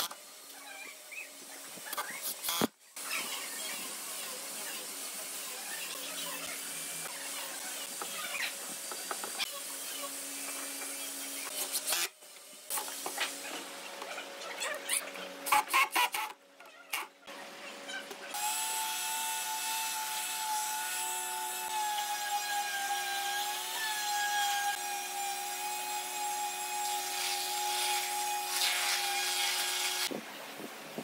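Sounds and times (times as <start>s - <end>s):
palm sander sanding wood: 18.4s - 30.1s.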